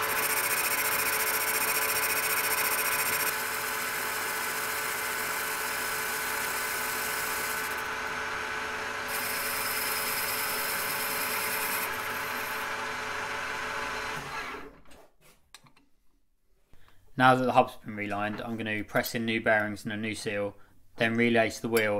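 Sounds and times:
metal lathe machining whine: 9.1 - 12.6.

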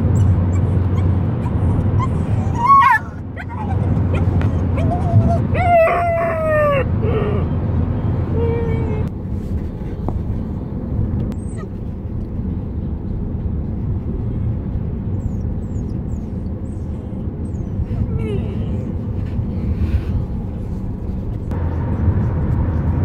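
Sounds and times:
car driving rumble: 0.0 - 23.0
dog whining: 0.1 - 9.1, 11.4 - 11.9, 15.2 - 19.2.

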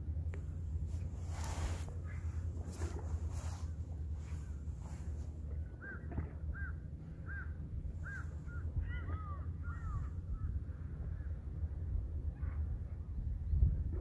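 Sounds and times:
steady low rumble: 0.0 - 14.0
bird calling: 4.3 - 10.6.

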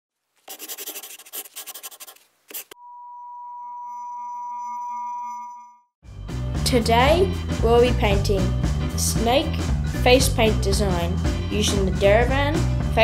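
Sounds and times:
rapid scratchy rubbing: 0.5 - 2.8
steady high tone: 2.8 - 5.9.

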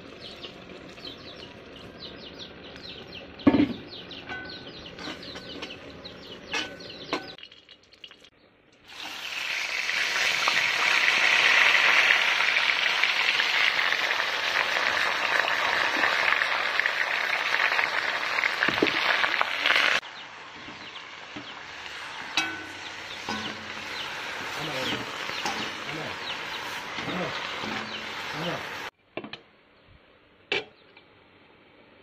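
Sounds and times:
greens sizzling in a wok: 8.8 - 29.0.

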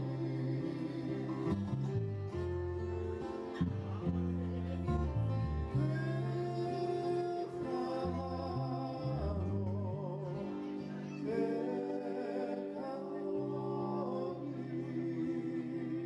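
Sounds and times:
man singing: 0.0 - 2.0, 5.6 - 16.0
acoustic guitar: 0.0 - 16.0.

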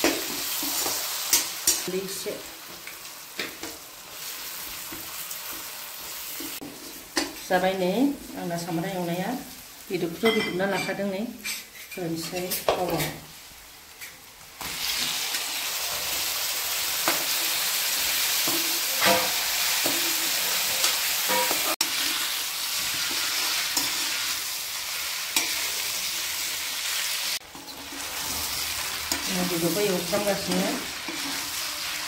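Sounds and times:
meat sizzling in hot oil: 0.0 - 7.4, 13.3 - 32.0
spatula scraping pan: 27.4 - 32.0.

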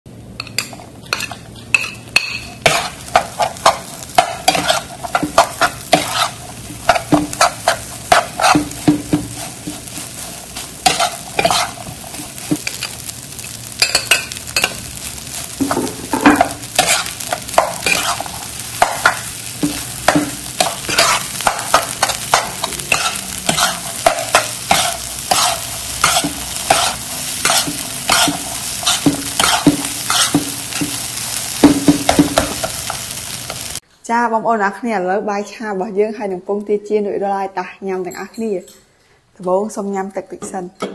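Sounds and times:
oil sizzling: 0.1 - 33.8
metal spatula scraping a wok: 0.5 - 13.1, 15.4 - 31.0.

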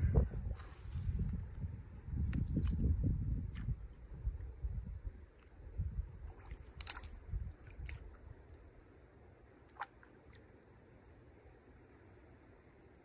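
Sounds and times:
twigs snapping: 6.3 - 8.6.

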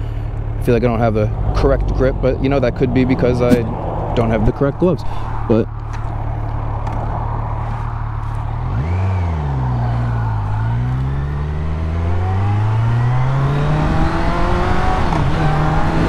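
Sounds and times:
wind rush: 2.9 - 11.1
motorcycle engine revving: 5.7 - 16.0.

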